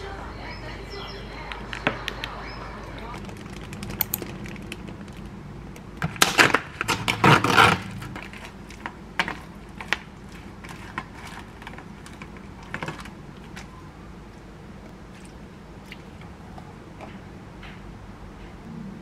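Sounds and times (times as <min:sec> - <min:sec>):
plastic packaging crinkling: 0:03.1 - 0:05.4.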